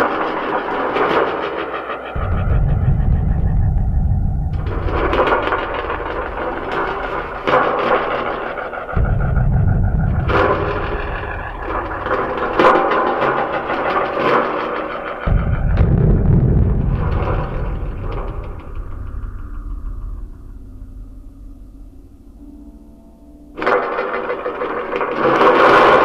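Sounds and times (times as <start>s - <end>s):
crackling noise texture with clicks: 0.0s - 22.0s, 23.6s - 26.0s
deep rumble: 2.1s - 14.4s, 15.2s - 23.7s.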